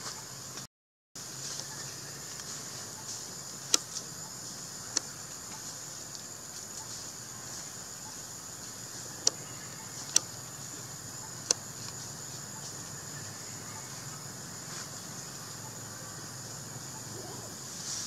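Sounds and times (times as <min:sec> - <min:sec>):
insects droning: 0:00.0 - 0:18.0
sharp clicks: 0:03.7 - 0:04.1, 0:09.2 - 0:09.4, 0:11.4 - 0:12.0.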